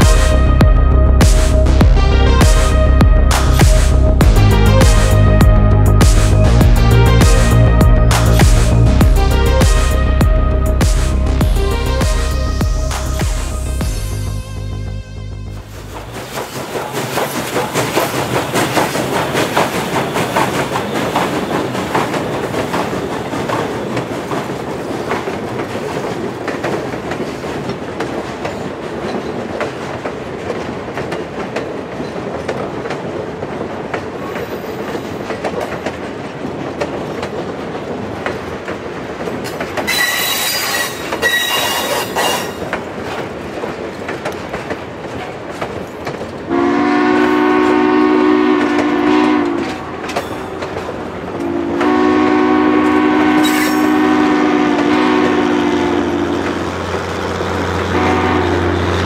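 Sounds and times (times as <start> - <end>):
train wheels clattering on rails: 15.8 - 59.0
train wheels squealing: 39.9 - 42.6, 53.4 - 54.0
steam locomotive exhaust: 46.5 - 50.1, 51.4 - 59.0.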